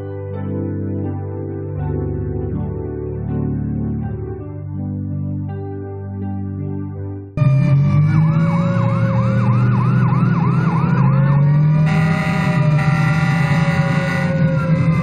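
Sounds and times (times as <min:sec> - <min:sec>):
piano music: 0:00.0 - 0:15.0
fire engine siren wailing: 0:07.4 - 0:15.0
steady engine drone: 0:07.4 - 0:15.0.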